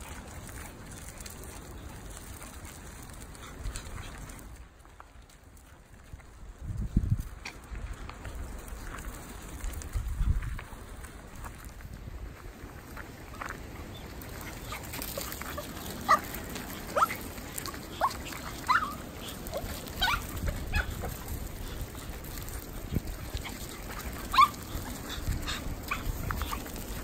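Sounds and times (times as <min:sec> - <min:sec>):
dogs yipping and barking: 0:13.4 - 0:27.0.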